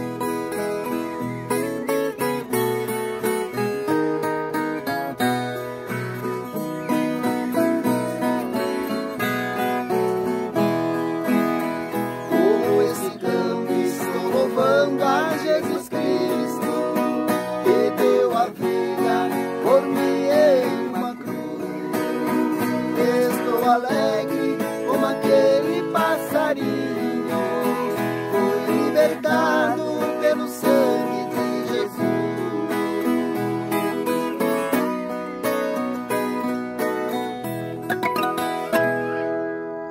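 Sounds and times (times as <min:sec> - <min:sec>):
guitar duet plucked: 0:00.0 - 0:39.9
men singing: 0:11.2 - 0:34.9.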